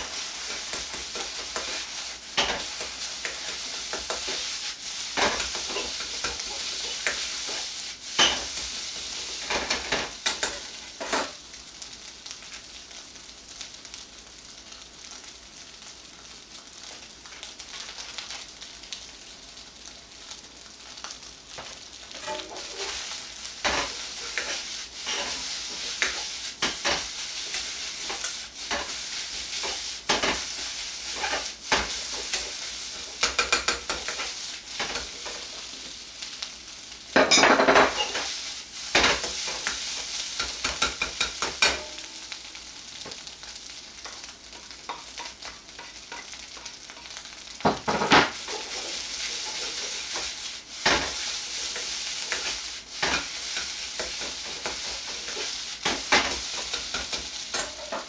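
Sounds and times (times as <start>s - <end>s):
rice sizzling in a wok: 0.0s - 58.0s
metal ladle scraping pan: 22.2s - 23.0s.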